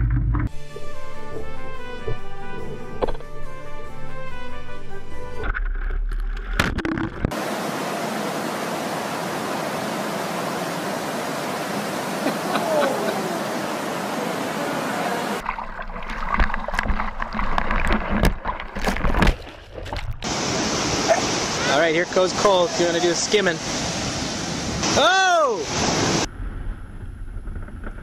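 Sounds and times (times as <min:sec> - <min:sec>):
knocks and splashes: 0:05.4 - 0:07.4, 0:15.4 - 0:20.9
water rushing: 0:06.9 - 0:26.3.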